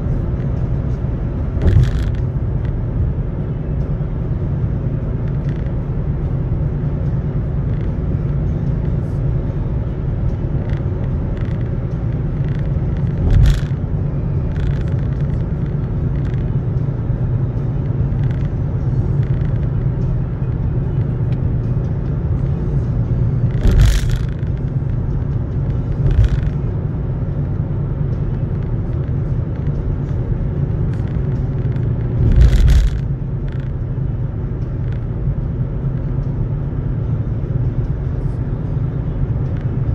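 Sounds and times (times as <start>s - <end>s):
car cabin road and engine rumble: 0.0s - 39.9s
short thumps: 1.5s - 2.4s.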